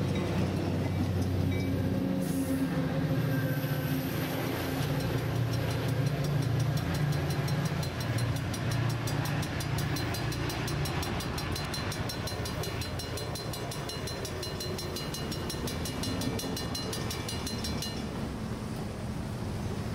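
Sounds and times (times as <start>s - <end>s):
diesel locomotive engine drone: 0.0s - 19.9s
rapid high ticking: 4.8s - 18.0s.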